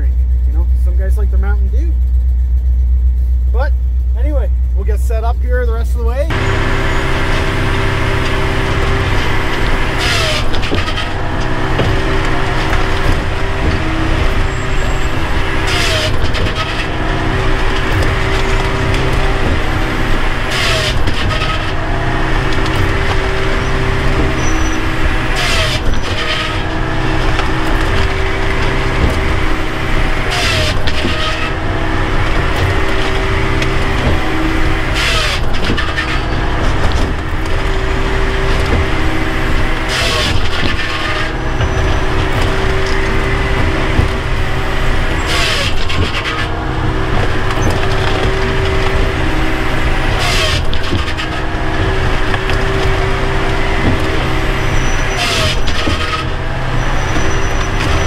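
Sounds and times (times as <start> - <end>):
engine and hydraulic drone: 0.0 - 58.0
wood being sawn and split: 6.3 - 58.0.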